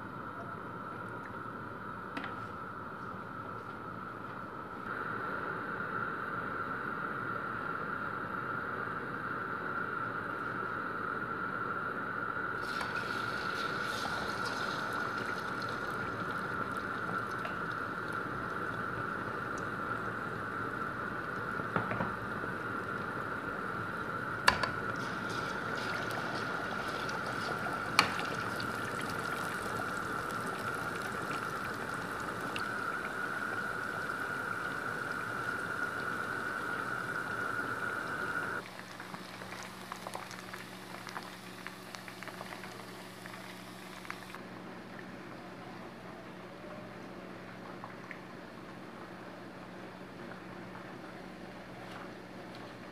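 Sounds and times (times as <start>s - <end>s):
chicken sizzling in hot oil: 12.6s - 19.8s, 24.5s - 44.4s.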